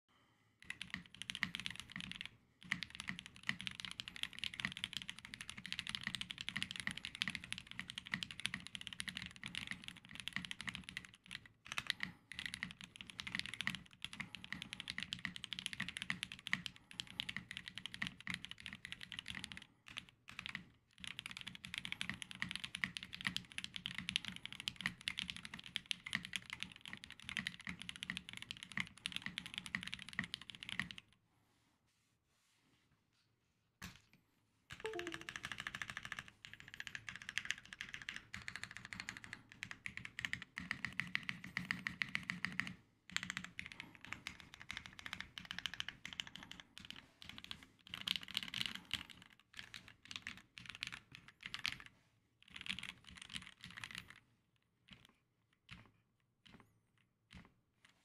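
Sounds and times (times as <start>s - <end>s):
fast typing on mechanical keyboard: 0.6s - 31.1s, 34.7s - 54.2s, 54.9s - 56.6s.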